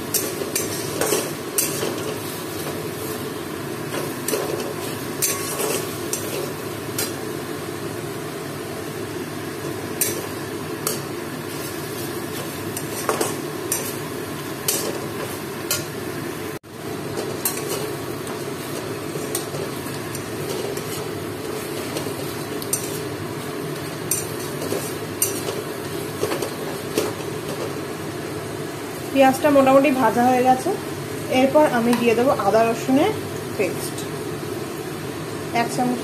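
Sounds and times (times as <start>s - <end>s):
onions sizzling in oil: 0.0s - 36.0s
metal spatula scraping pan: 4.0s - 7.1s.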